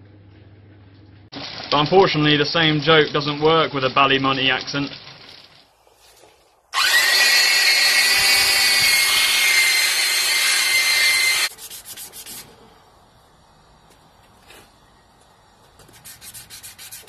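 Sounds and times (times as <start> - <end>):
electric sander on steel: 6.8 - 11.8.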